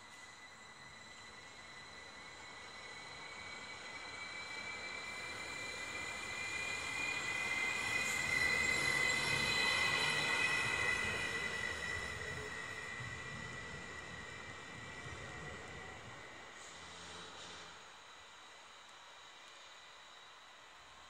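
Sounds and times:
electric train rolling past: 0.0s - 21.0s
high-pitched train squeal: 0.0s - 21.0s.

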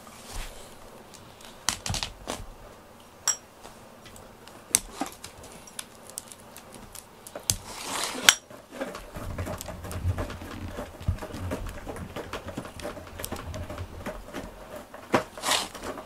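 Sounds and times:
rustle: 0.0s - 11.1s, 12.5s - 16.0s
glass jars clinking on floor: 3.3s - 3.5s.

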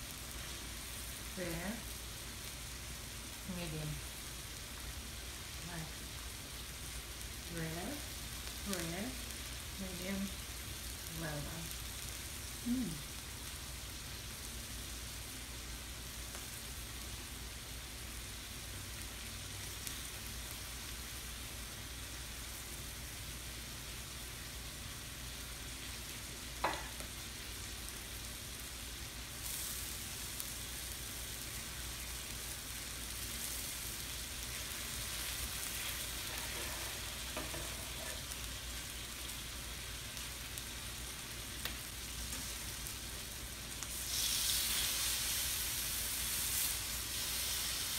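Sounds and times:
meat and peppers sizzling on griddle: 0.0s - 47.9s.

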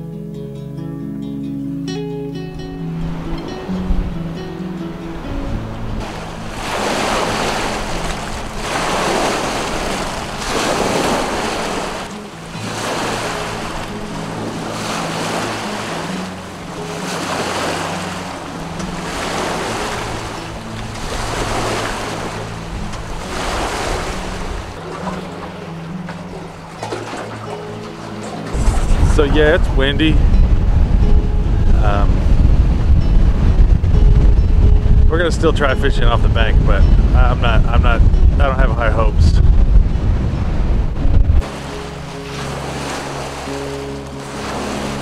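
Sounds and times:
soft background music: 0.0s - 45.0s
gusting wind: 2.4s - 45.0s
waves splashing on rocky shore: 3.1s - 31.2s, 41.4s - 45.0s.

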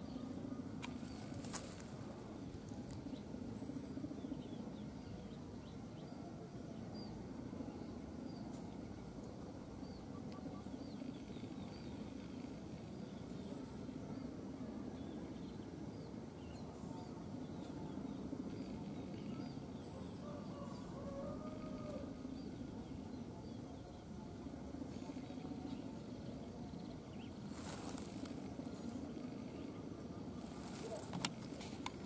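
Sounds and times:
low background hum: 0.0s - 32.0s.

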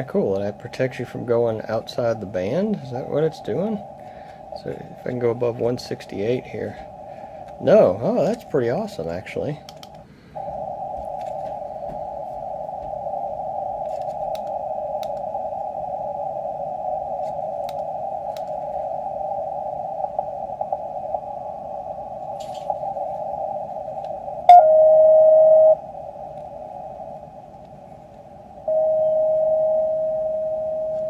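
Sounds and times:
radio band hiss: 0.0s - 24.6s
steady radio signal tone: 0.0s - 31.0s
faint clicks: 9.6s - 10.0s, 17.2s - 18.7s.

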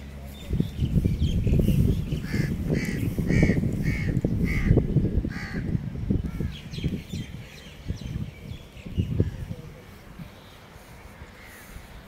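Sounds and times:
low microphone rumble: 0.0s - 11.2s
crows cawing: 2.2s - 5.7s.

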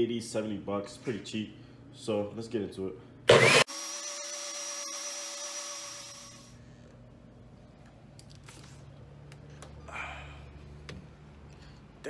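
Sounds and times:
blender motor whining: 3.3s - 6.6s.

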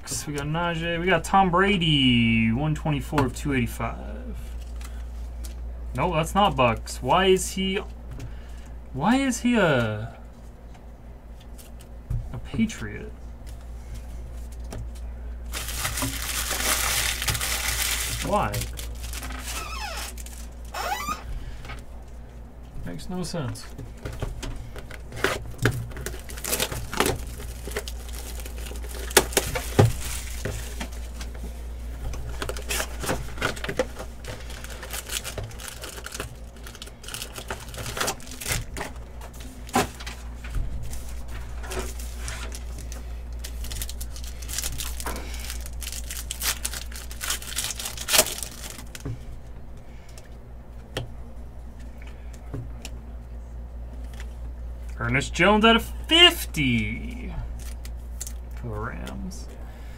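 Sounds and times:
low steady hum: 0.0s - 59.9s
foil wrappers crinkling: 13.4s - 21.2s, 24.7s - 31.5s, 32.1s - 49.1s, 56.9s - 58.5s.

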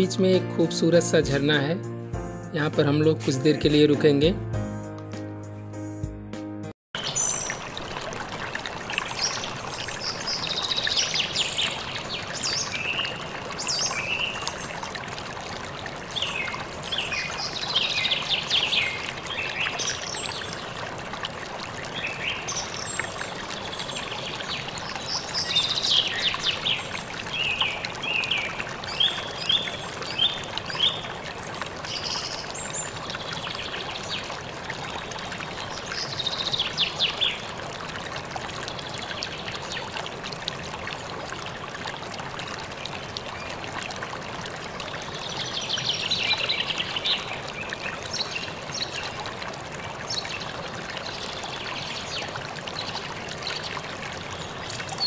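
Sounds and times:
waterfall splashing into pool: 7.0s - 55.0s.

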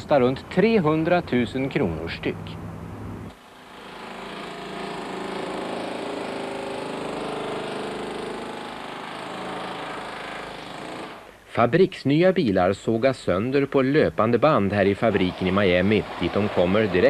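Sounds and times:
power saw cutting metal: 3.3s - 11.3s, 15.0s - 17.0s.

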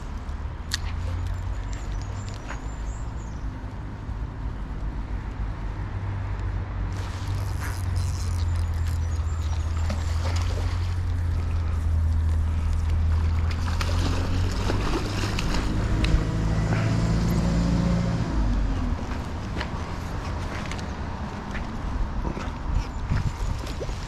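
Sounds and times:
low engine-like hum: 0.0s - 24.0s
fish splashing in water: 7.0s - 17.3s.

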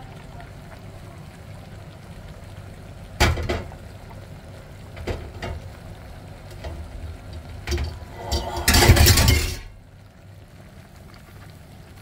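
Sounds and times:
low rumble of steaming pot: 0.0s - 12.0s
metal cookware clanking on pot: 7.7s - 9.7s.

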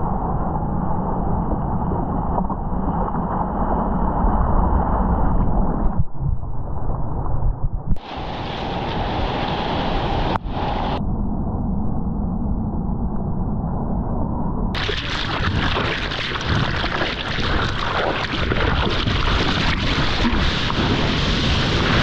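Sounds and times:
wind buffeting the microphone: 0.0s - 22.0s
ocean surf rushing: 8.0s - 11.0s, 14.8s - 22.0s.

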